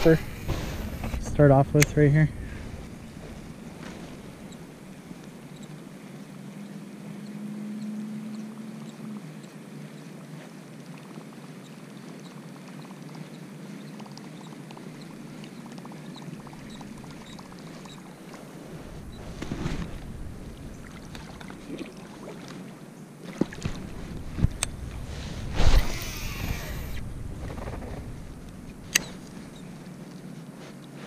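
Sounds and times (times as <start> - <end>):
low hum: 0.0 - 9.6, 15.0 - 22.7, 23.4 - 30.6
steady background hiss: 0.0 - 13.9, 14.5 - 31.0
fishing reel ticking: 25.7 - 27.0.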